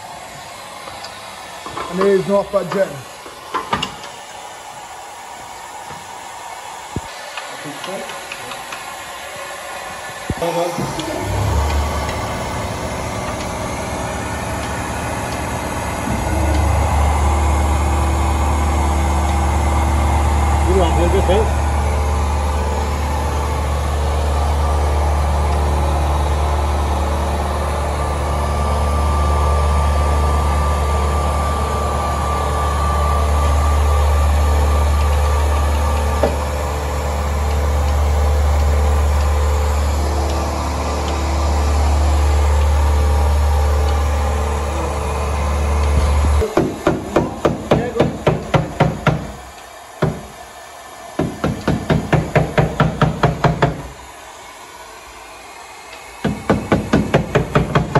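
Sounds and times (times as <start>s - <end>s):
machine humming: 0.0s - 57.9s
rapid sharp knocks: 46.5s - 49.4s, 50.0s - 50.4s, 51.2s - 54.0s, 56.2s - 57.9s.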